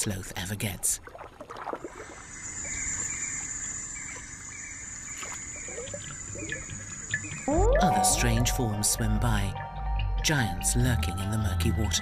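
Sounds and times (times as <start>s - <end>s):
water splashing: 0.8s - 2.3s.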